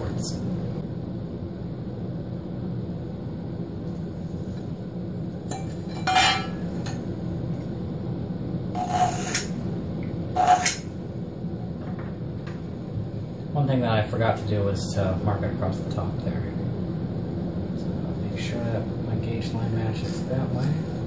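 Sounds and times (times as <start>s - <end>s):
low room hum: 0.0s - 21.0s
tool scraping along metal: 8.8s - 9.6s, 10.4s - 10.9s.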